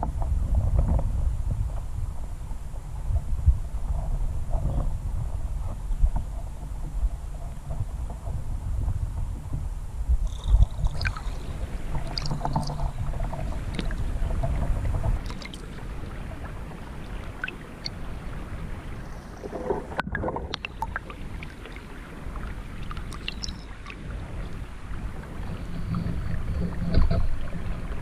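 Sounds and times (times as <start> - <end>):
underwater stream current rumble: 0.0 - 28.0
small underwater clicks: 10.2 - 16.4, 17.2 - 18.3, 19.0 - 24.6.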